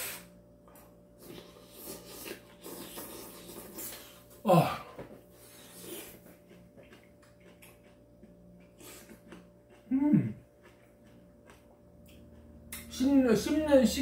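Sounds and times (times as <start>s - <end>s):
chewing with mouth clicks: 0.7s - 4.4s, 5.4s - 13.7s
person slurping noodles: 1.2s - 4.8s.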